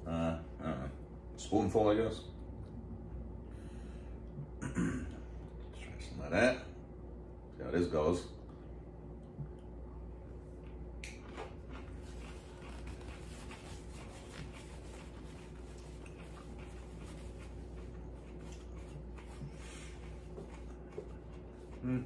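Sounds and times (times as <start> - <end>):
low steady hum: 0.0 - 22.0
person chewing: 10.6 - 22.0.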